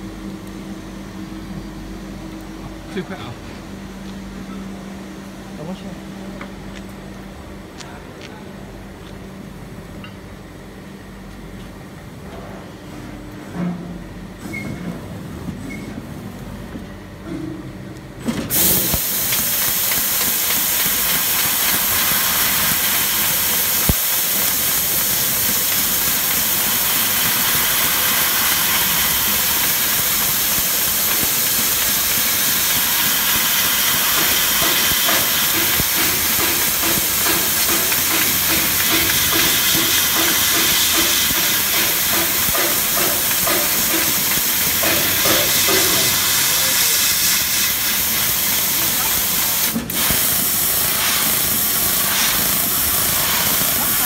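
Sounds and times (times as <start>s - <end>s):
loud gas jet hiss: 18.5s - 54.0s.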